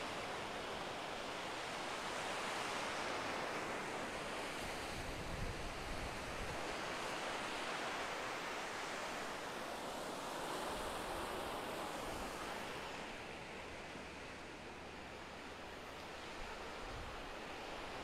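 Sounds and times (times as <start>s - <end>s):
small waves breaking on a beach: 0.0s - 18.0s.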